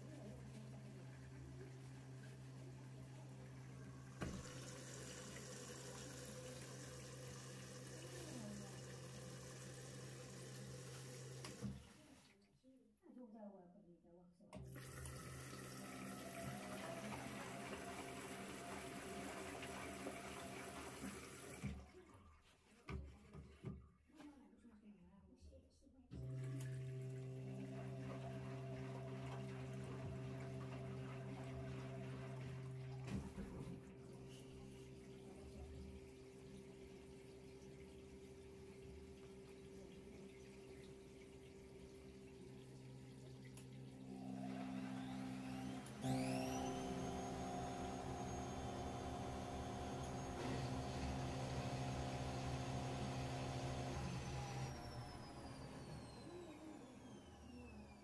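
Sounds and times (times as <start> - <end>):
water running in drum: 0.0 - 12.3, 14.6 - 23.8, 26.2 - 57.4
washing machine electrical hum: 0.0 - 12.4, 14.5 - 22.5, 26.1 - 58.0
water rushing into drawer: 14.7 - 21.9.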